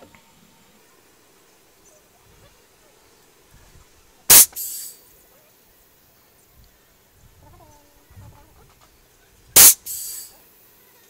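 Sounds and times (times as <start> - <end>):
short air hiss: 3.6 - 5.1, 9.5 - 10.5
sharp blast of air: 4.3 - 5.0, 9.6 - 10.4.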